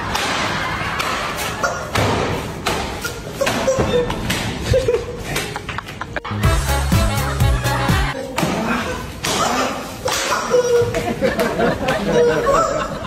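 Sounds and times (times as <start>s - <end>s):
music: 6.2s - 8.2s.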